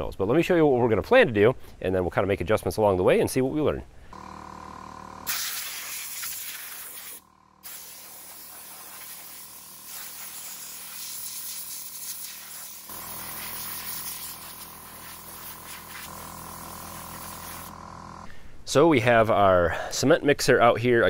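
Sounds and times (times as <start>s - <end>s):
hose spray hissing on stones: 5.3s - 16.2s.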